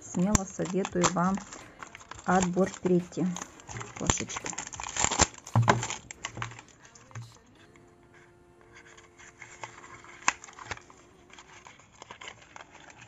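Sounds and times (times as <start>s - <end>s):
cardboard box rustling: 0.4s - 7.4s, 8.8s - 13.0s
faint held musical tone: 5.4s - 12.0s.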